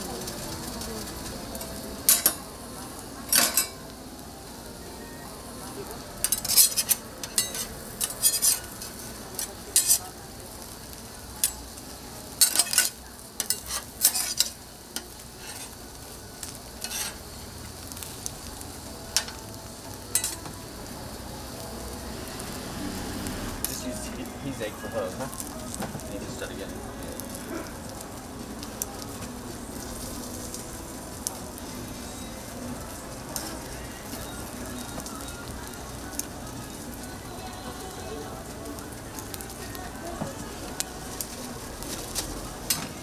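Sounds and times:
food sizzling on griddle: 0.0s - 43.0s
metal spatula scraping: 6.2s - 10.2s, 12.4s - 14.6s, 15.4s - 15.8s, 16.8s - 17.2s.

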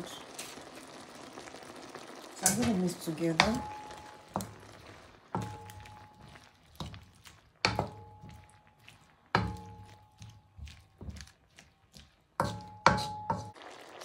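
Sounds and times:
wooden spatula knocking on wok: 3.3s - 4.7s, 5.3s - 8.7s, 9.3s - 13.6s.

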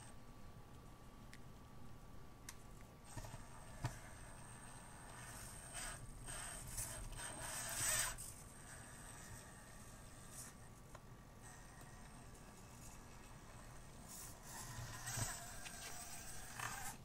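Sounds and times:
small electric motor whirring: 3.1s - 10.7s, 11.4s - 17.0s.

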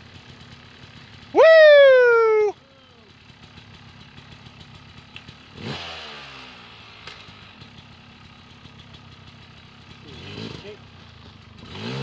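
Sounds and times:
dirt bike engine revving: 5.5s - 7.7s, 9.9s - 10.9s, 11.6s - 12.0s.

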